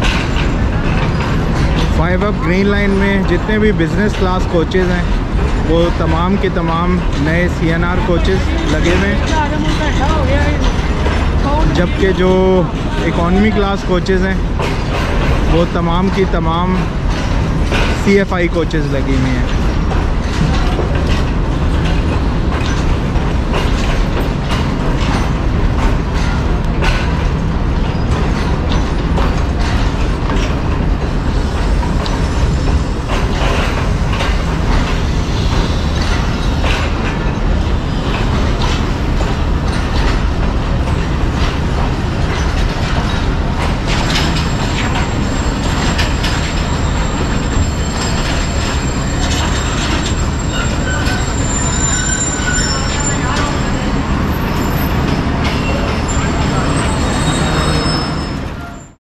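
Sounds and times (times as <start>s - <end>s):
wheels clicking over rail joints: 0.0s - 58.9s
train low rumble: 0.0s - 59.0s
high wheel squeal: 43.9s - 59.0s.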